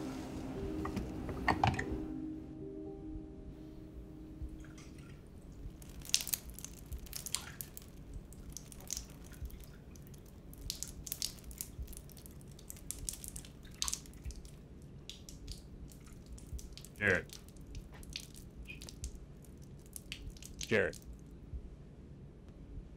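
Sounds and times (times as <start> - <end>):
low steady room hum: 0.0 - 22.9
faint irregular clicks and ticks: 4.4 - 21.7.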